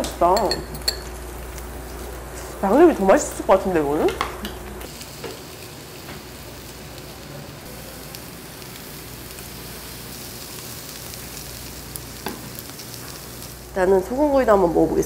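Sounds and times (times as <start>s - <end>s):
fish sizzling on a grill plate: 4.9s - 14.4s.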